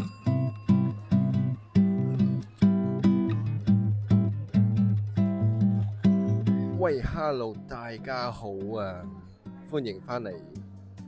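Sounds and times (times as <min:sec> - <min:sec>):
acoustic guitar strumming chords: 0:00.0 - 0:08.4.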